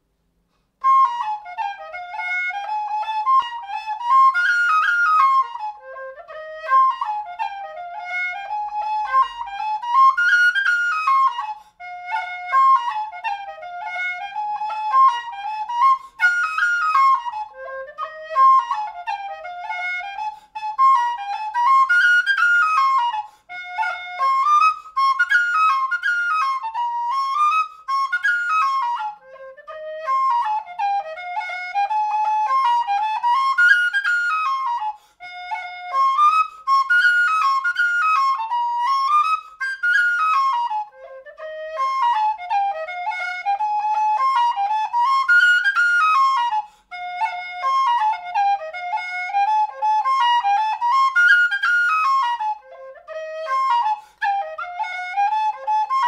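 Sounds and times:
tin whistle playing a hornpipe: 0:00.8 - 0:56.0.

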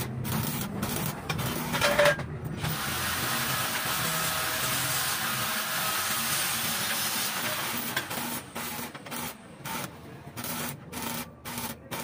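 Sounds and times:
arc welding crackling hiss: 0:02.6 - 0:09.8.

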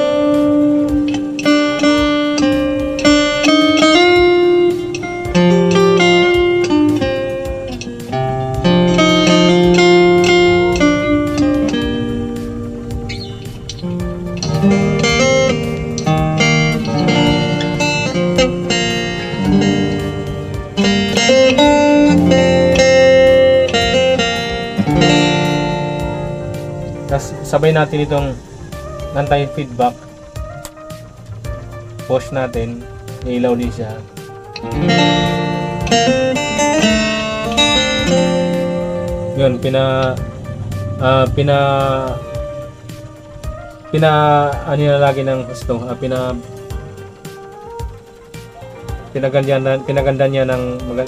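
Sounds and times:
acoustic guitar slow melody: 0:00.0 - 0:51.0.

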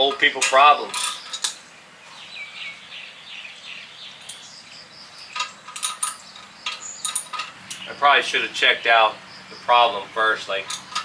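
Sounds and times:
hand tools clinking on metal: 0:00.0 - 0:01.6, 0:05.3 - 0:07.9, 0:10.4 - 0:11.0
birds chirping: 0:00.0 - 0:11.0.

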